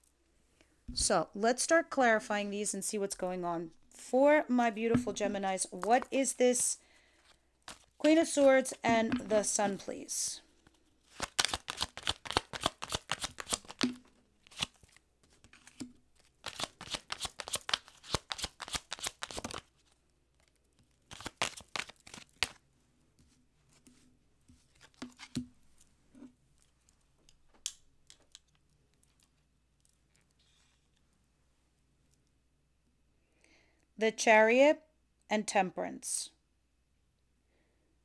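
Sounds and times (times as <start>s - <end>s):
cards being shuffled: 7.7s - 9.8s, 11.0s - 22.6s, 24.6s - 25.4s.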